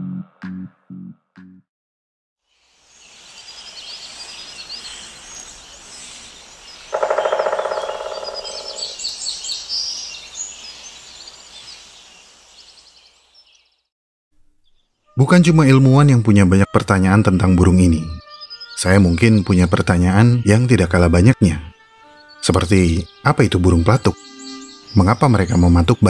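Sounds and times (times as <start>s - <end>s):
high bird chirps: 3.4s - 12.0s, 18.0s - 19.8s, 23.1s - 26.0s
woodpecker drumming on tree: 6.8s - 9.2s.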